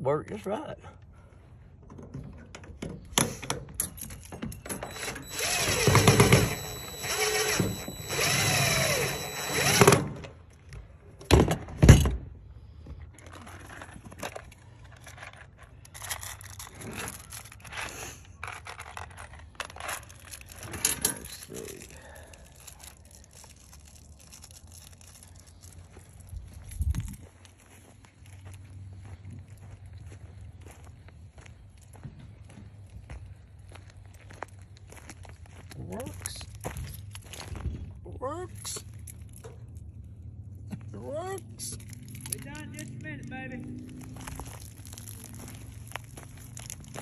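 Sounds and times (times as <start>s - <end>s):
cordless drill motor whine: 4.7s - 10.3s.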